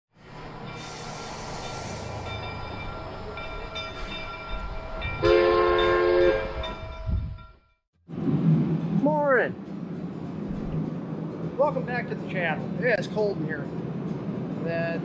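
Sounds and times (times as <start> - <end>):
steam locomotive rumble: 0.2 - 7.5.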